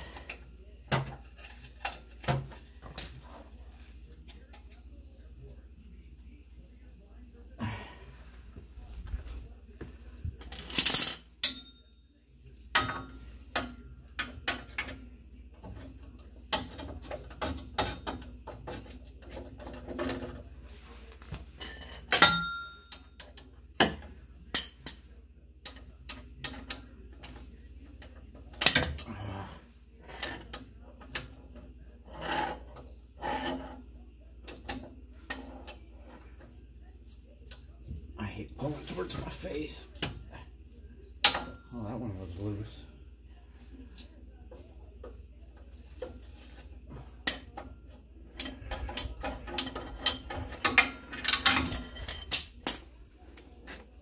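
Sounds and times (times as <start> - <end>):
socket wrench clinking on metal: 21.7 - 25.0.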